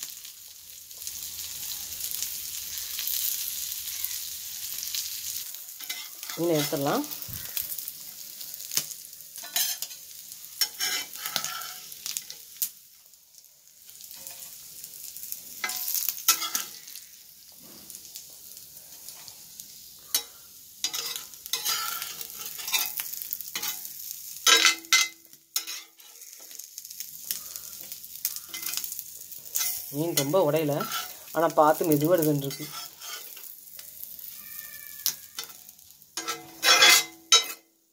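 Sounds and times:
hot oil sizzling: 0:00.0 - 0:37.9
steel spatula scraping pan: 0:05.8 - 0:06.9, 0:09.4 - 0:10.0, 0:10.6 - 0:12.3, 0:15.6 - 0:16.9, 0:20.1 - 0:26.4, 0:28.4 - 0:28.9, 0:29.5 - 0:31.3, 0:32.3 - 0:33.5, 0:34.4 - 0:35.6, 0:36.2 - 0:37.7.

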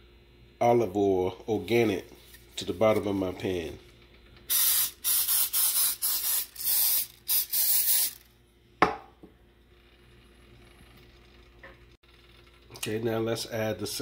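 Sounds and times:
oil sprayer hissing bursts: 0:04.5 - 0:08.2.

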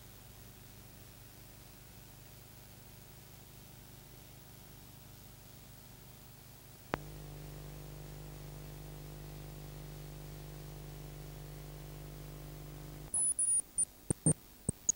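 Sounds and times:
low electrical hum: 0:00.1 - 0:14.9
noise bursts with high whistle: 0:13.1 - 0:14.9
sharp click: 0:13.1 - 0:14.9.

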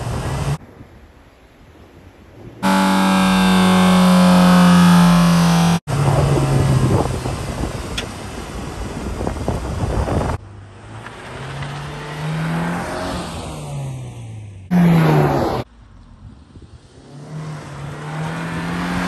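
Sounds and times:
car engine revving: 0:02.6 - 0:06.9, 0:10.7 - 0:15.7, 0:17.0 - 0:19.0
car engine running: 0:02.6 - 0:07.4.

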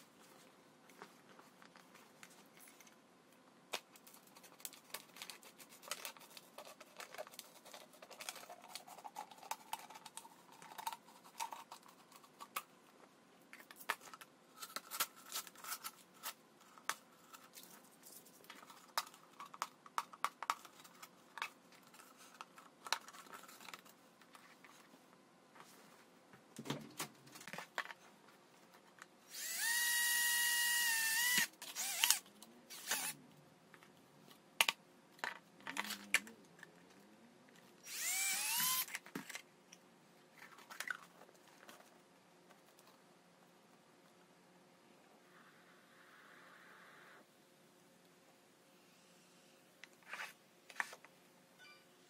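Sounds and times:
power drill whine: 0:29.3 - 0:33.2, 0:37.8 - 0:38.9.

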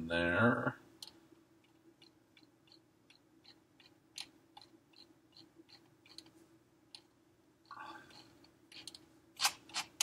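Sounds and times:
low steady hum: 0:00.0 - 0:10.0
mouse scroll wheel clicks: 0:01.0 - 0:06.3, 0:08.1 - 0:10.0.

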